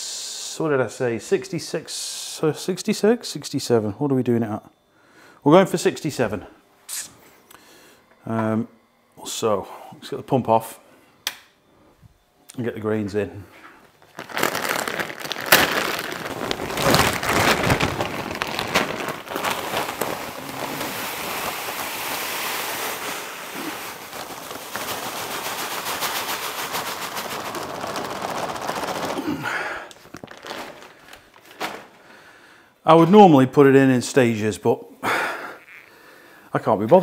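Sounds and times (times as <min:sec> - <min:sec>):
grain pouring into water: 0:14.2 - 0:31.5.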